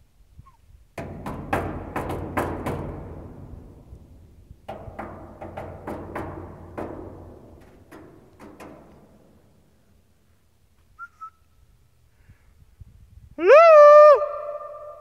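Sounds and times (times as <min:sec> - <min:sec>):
booming bangs in metal cone: 0:01.0 - 0:09.6.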